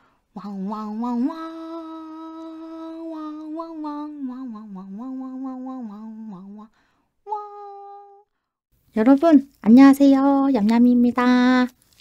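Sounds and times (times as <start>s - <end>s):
woman humming: 0.4s - 6.7s, 7.3s - 8.2s.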